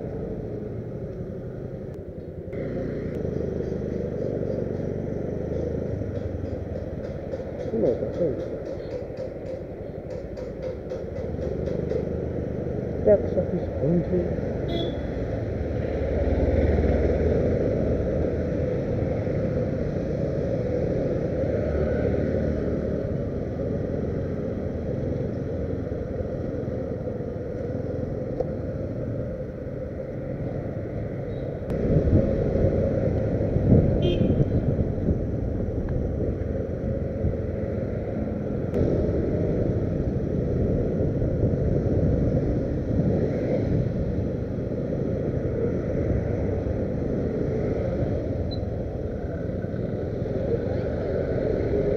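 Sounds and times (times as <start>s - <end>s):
road and wind rumble: 0.0s - 51.9s
motorcycle engine running: 2.5s - 15.4s.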